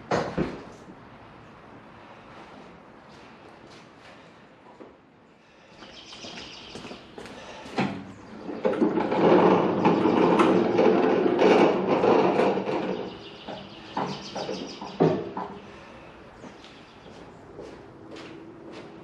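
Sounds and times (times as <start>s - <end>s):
casters rolling on garage floor: 5.8s - 19.0s.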